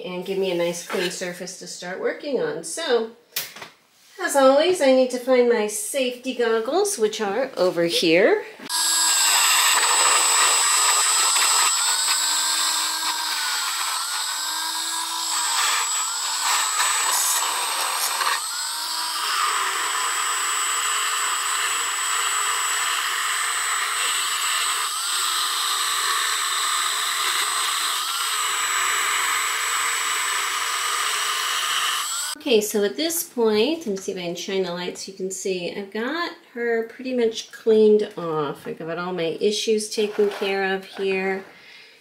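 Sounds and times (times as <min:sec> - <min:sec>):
rotary tool wire brush whining: 0:08.7 - 0:32.4.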